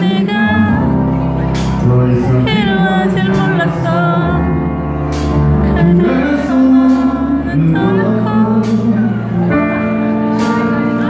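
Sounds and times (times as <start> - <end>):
bass line: 0.0 - 11.0
electric guitar: 0.0 - 11.0
man singing: 0.0 - 11.0.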